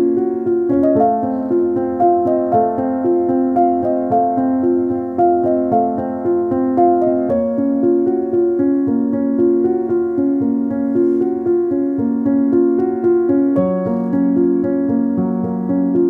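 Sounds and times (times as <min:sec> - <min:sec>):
keyboard melody over chords: 0:00.0 - 0:16.0.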